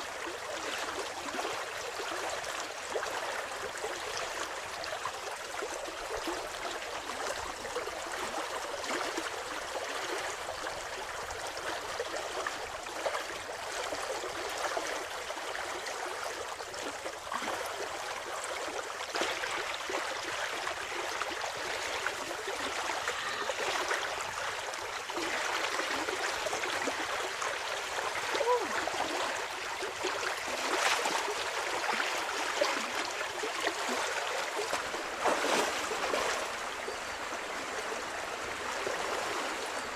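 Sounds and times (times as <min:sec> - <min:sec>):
river water flowing: 0:00.0 - 0:39.9
person wading and splashing: 0:30.5 - 0:36.5.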